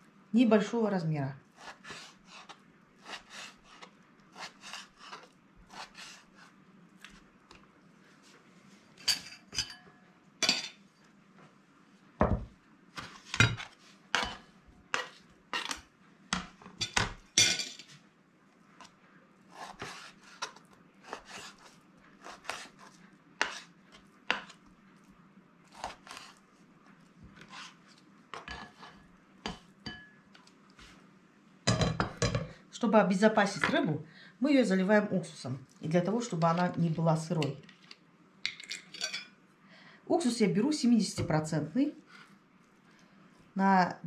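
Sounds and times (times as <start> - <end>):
glass bowl clinking: 29.9 - 30.2.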